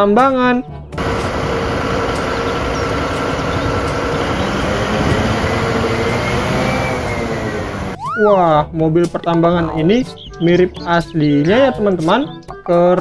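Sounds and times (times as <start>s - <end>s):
diesel engine rumbling: 1.0s - 8.0s.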